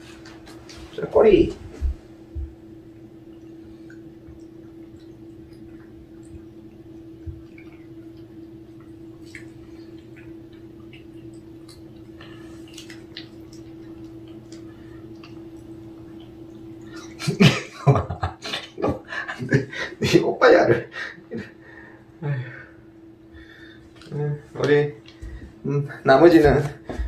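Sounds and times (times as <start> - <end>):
steady hum: 0.0 - 27.0
cats licking wet smacking: 2.5 - 17.8.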